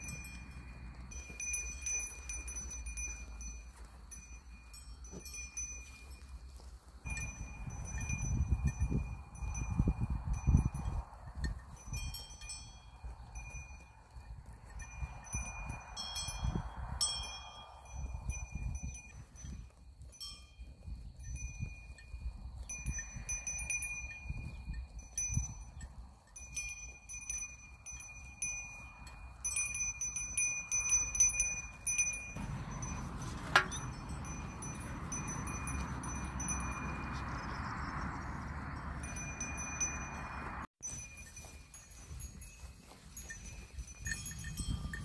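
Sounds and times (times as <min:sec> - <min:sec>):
goat bells ringing: 0:00.0 - 0:45.0
low rumble: 0:32.2 - 0:40.7.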